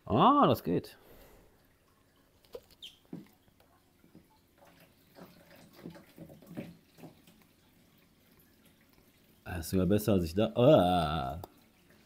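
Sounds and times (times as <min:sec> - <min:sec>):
water siphoning through hose: 0:01.6 - 0:12.0
water gurgles and splashes: 0:01.8 - 0:09.5.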